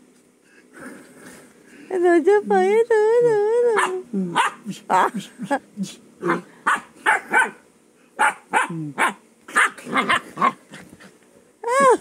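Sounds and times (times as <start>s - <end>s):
puppy barking and yipping: 3.8s - 4.6s, 6.2s - 7.6s, 8.2s - 10.6s.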